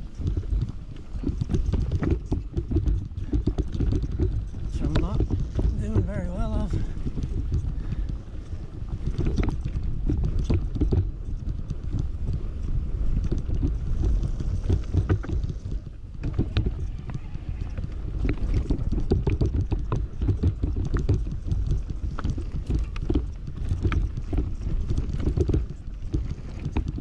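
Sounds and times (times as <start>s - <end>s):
tyres rumbling on dirt: 0.0s - 12.4s, 13.1s - 27.0s
bike clicks and rattles: 0.0s - 27.0s
wind buffeting microphone: 0.0s - 27.0s.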